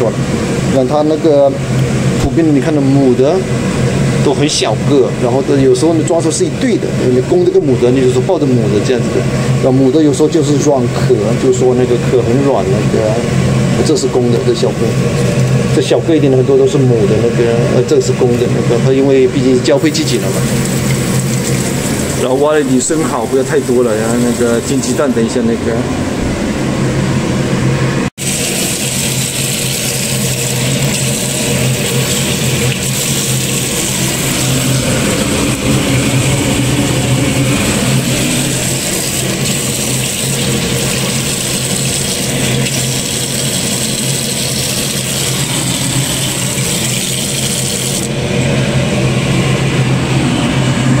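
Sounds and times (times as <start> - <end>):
low hum: 11.8 - 51.0.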